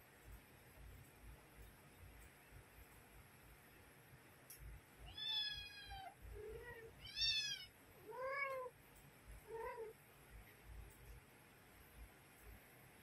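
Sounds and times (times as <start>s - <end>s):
cat meowing: 5.1s - 8.7s.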